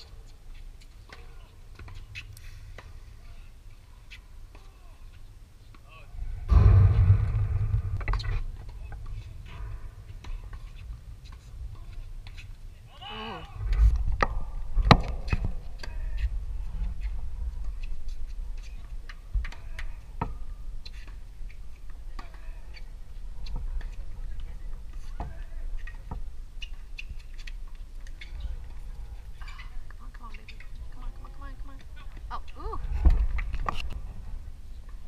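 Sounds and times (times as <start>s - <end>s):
low rumble: 6.2s - 12.2s
tennis balls struck by rackets: 14.2s - 16.3s.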